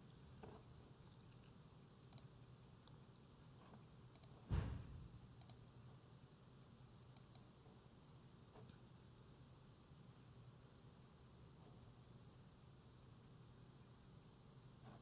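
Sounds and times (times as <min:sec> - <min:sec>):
computer mouse clicks: 0:02.1 - 0:03.0, 0:03.6 - 0:04.4, 0:05.4 - 0:05.6, 0:07.1 - 0:07.5
dull thump: 0:04.5 - 0:05.0.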